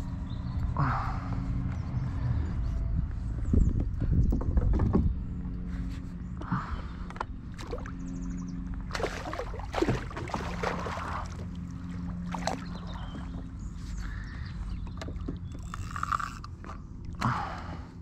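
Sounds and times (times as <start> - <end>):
fish thrashing and splashing: 8.9 - 13.3.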